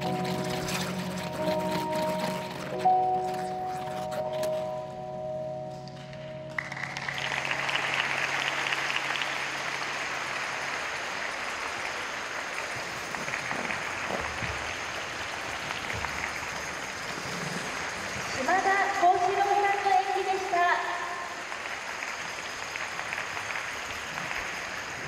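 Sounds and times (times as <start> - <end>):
sustained music chord: 0.0 - 10.1
audience applause: 6.5 - 25.0.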